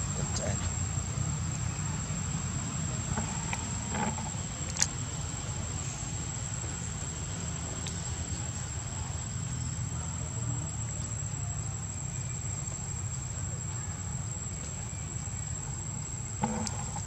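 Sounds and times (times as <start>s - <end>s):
high-pitched insect drone: 0.0s - 17.0s.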